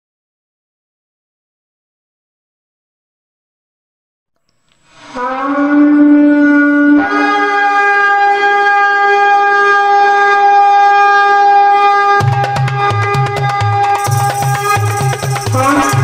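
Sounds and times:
drums: 0:12.2 - 0:16.0.

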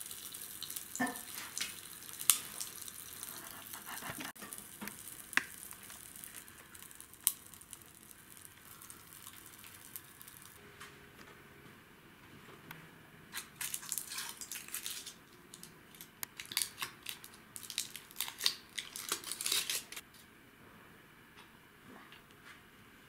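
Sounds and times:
soft drink fizzing: 0:00.0 - 0:10.6.

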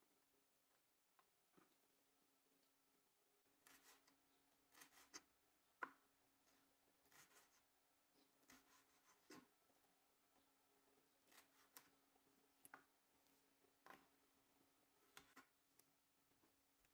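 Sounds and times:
knife cutting on wooden board: 0:04.7 - 0:05.3.

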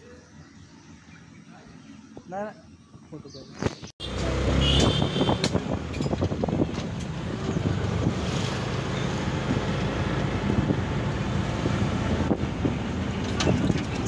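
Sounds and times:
road noise: 0:00.0 - 0:14.0
auto-rickshaw engine running: 0:04.0 - 0:14.0
wind buffeting microphone: 0:04.7 - 0:14.0.

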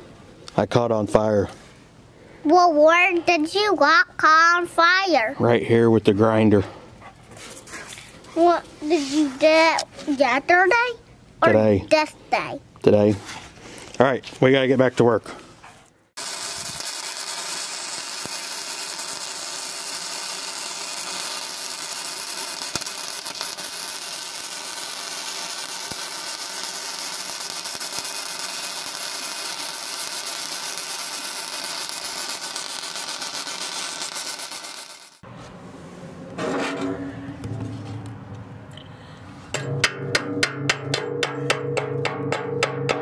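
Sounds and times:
welding arc crackle and hiss: 0:16.2 - 0:35.2.

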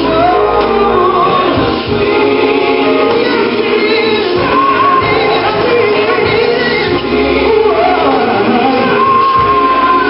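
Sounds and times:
gospel song with singing: 0:00.0 - 0:10.0.

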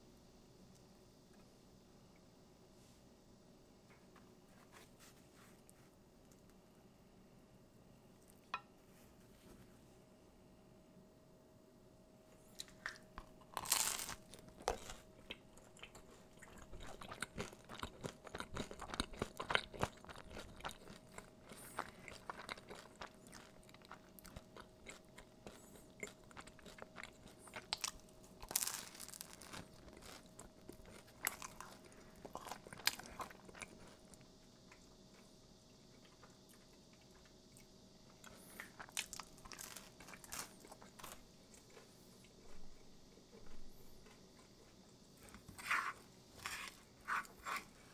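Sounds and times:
crusty bread crunching: 0:12.6 - 0:34.0, 0:38.6 - 0:41.9.

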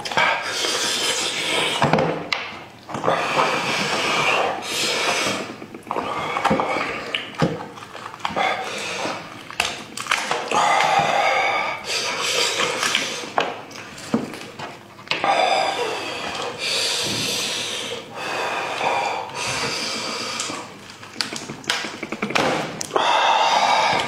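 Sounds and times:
wet squelching and tearing meat: 0:05.5 - 0:11.0.

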